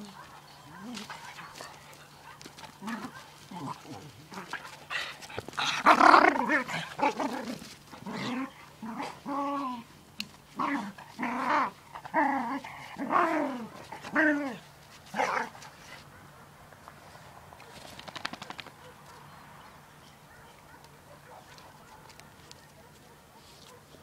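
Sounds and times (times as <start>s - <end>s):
dogs growling: 0.0s - 9.9s, 10.5s - 16.0s.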